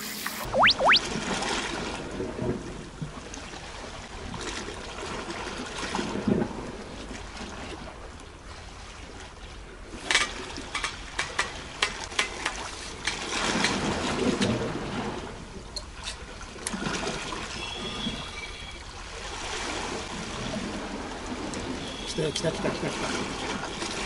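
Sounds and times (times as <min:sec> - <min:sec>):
waves washing against rocks: 0:19.3 - 0:24.0.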